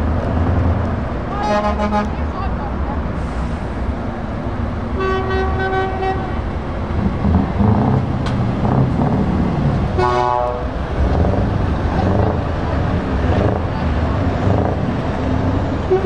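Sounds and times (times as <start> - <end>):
diesel lorry engine rumble: 0.0 - 16.0
lorry air horn blasts: 1.3 - 2.1, 10.0 - 10.7.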